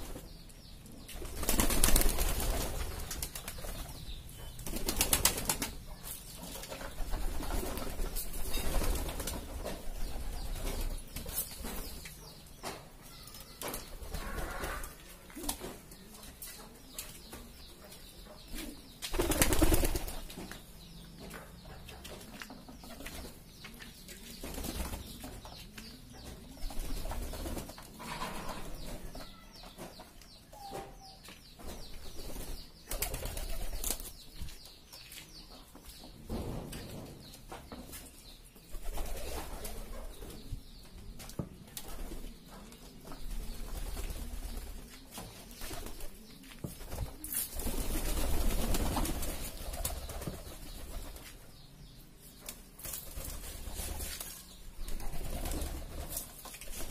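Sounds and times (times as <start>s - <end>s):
beaks pecking on concrete: 0.2s - 30.4s
wings flapping: 1.2s - 3.9s, 4.6s - 5.8s, 19.1s - 20.3s, 45.6s - 51.2s
pigeons cooing: 14.0s - 15.8s.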